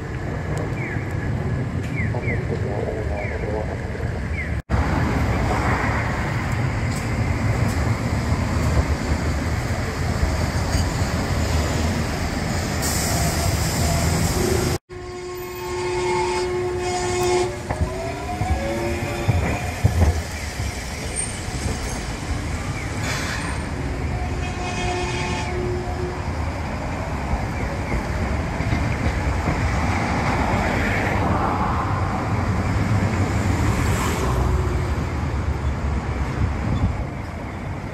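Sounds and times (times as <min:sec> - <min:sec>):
tram wheels rumbling: 0:00.0 - 0:37.9
wheels clacking on rails: 0:04.8 - 0:12.8, 0:17.1 - 0:24.8, 0:26.5 - 0:31.4.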